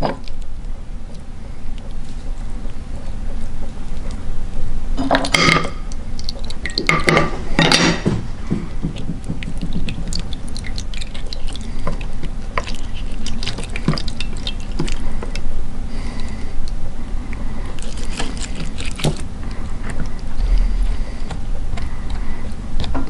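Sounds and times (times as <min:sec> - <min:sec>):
juice dripping onto plate: 0:05.0 - 0:07.8, 0:08.4 - 0:16.8
fingers squelching wet pulp: 0:05.3 - 0:07.1, 0:08.5 - 0:23.0.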